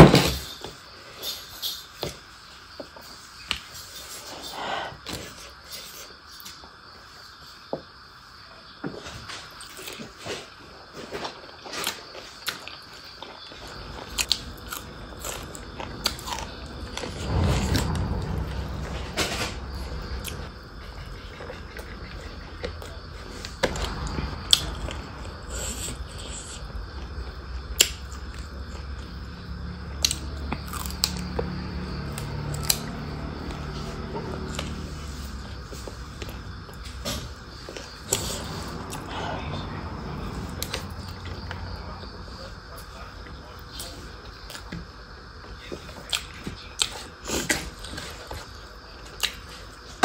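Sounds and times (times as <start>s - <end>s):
person chewing food: 11.4s - 17.2s, 30.0s - 31.5s
low steady hum: 13.4s - 31.5s.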